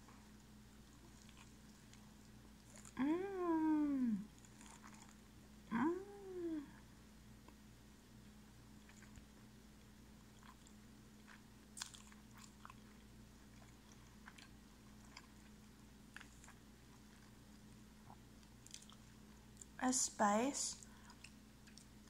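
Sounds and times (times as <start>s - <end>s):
low steady hum: 0.0s - 22.0s
chewing crunches: 0.8s - 3.0s, 4.3s - 5.3s, 8.8s - 9.3s, 10.2s - 19.8s, 20.8s - 22.0s.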